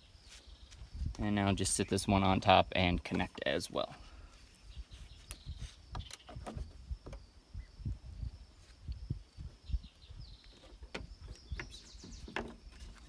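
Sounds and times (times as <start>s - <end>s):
bird-like chirps: 4.1s - 13.0s.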